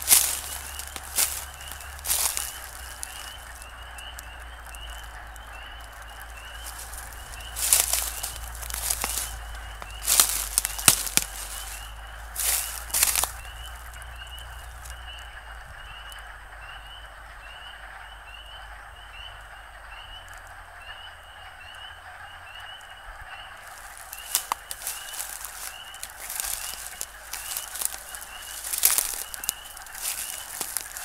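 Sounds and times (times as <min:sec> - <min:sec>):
rustling crunches in dry leaves: 0:00.0 - 0:15.1, 0:23.6 - 0:31.0
frogs calling: 0:00.0 - 0:31.0.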